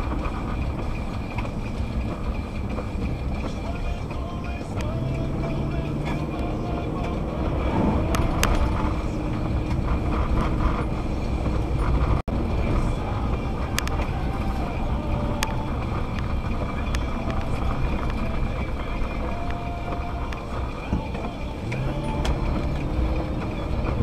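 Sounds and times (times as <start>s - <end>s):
car engine and tyre noise: 0.0s - 24.0s
sharp ticks: 0.0s - 24.0s.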